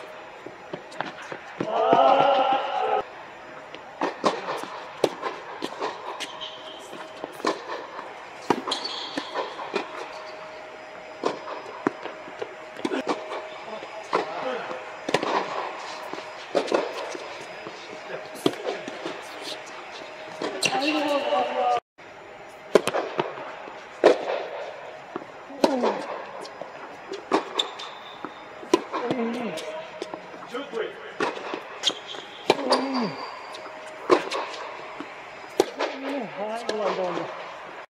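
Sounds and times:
steady hum: 0:00.0 - 0:37.9
tennis ball bouncing: 0:03.7 - 0:10.2, 0:11.0 - 0:17.8, 0:25.1 - 0:29.4, 0:33.6 - 0:36.0
tennis racket hitting ball: 0:04.0 - 0:10.1, 0:15.0 - 0:17.8, 0:33.6 - 0:36.1.

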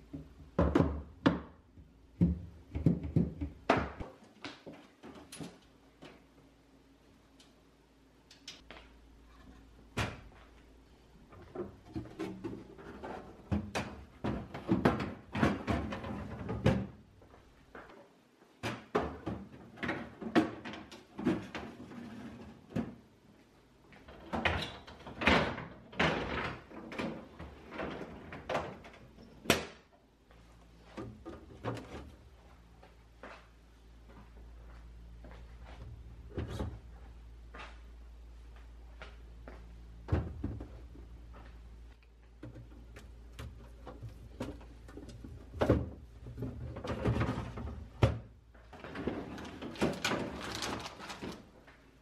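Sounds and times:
plastic drawers rattling: 0:48.8 - 0:51.5.

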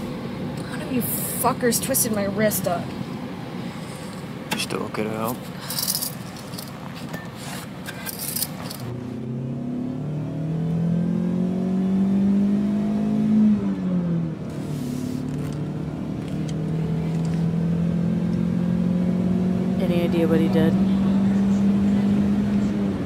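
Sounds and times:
car engine accelerating: 0:08.7 - 0:23.0.

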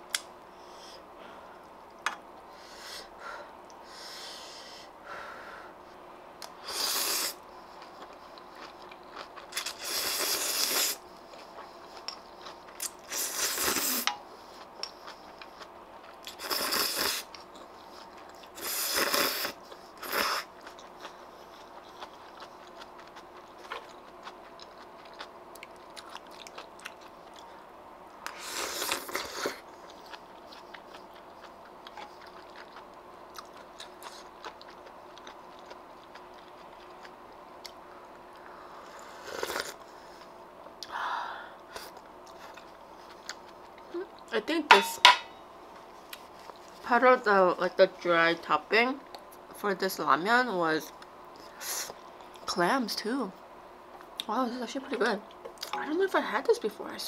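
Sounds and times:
chewing and soft crunching: 0:07.4 - 0:41.0, 0:41.6 - 0:44.4, 0:45.6 - 0:48.0, 0:50.9 - 0:52.6.

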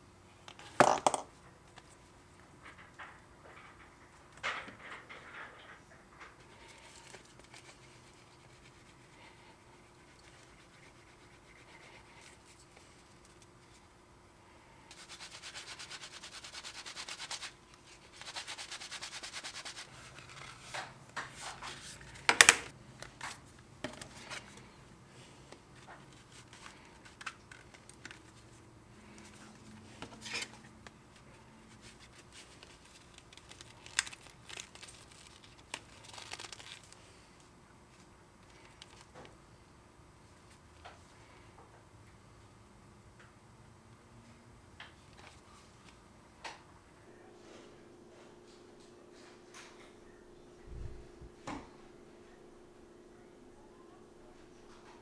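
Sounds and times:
leather sanded on sanding block: 0:14.9 - 0:17.5, 0:18.1 - 0:19.9.

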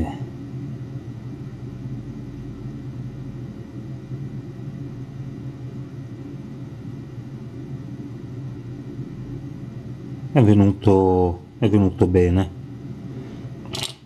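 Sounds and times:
faint constant tones: 0:00.0 - 0:14.0
low machine hum: 0:00.0 - 0:14.0.

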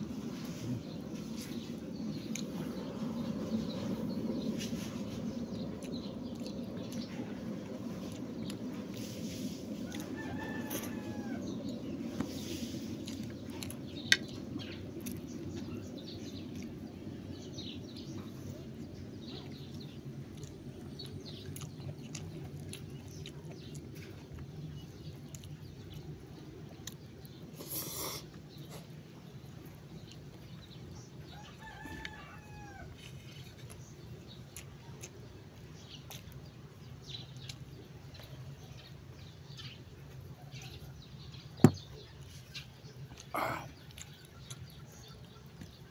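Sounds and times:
steady low rumble: 0:00.0 - 0:27.2
soft clicks of eating: 0:01.4 - 0:02.9, 0:05.3 - 0:09.0, 0:13.0 - 0:27.4, 0:28.3 - 0:30.7, 0:31.3 - 0:40.8, 0:42.2 - 0:45.9.

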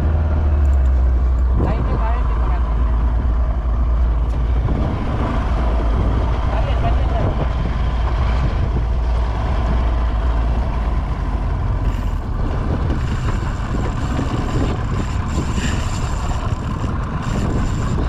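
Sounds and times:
boat engine rumbling: 0:00.0 - 0:18.0
wind on microphone: 0:00.0 - 0:18.0
sea wash: 0:10.9 - 0:18.0.

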